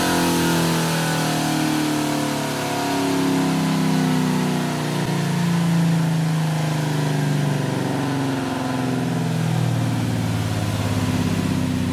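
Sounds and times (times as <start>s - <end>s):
car engine winding down: 0.0s - 11.9s.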